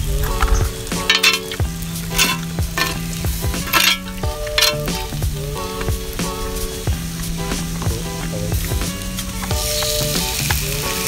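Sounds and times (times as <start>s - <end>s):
background music sustained notes: 0.0s - 11.0s
food sizzling: 0.0s - 11.0s
metal spoon scraping grill pan: 0.5s - 6.9s.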